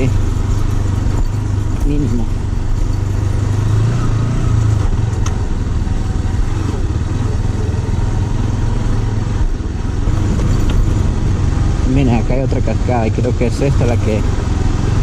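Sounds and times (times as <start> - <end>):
motorcycle engine running: 0.0 - 15.0
tyre and road noise: 0.0 - 15.0.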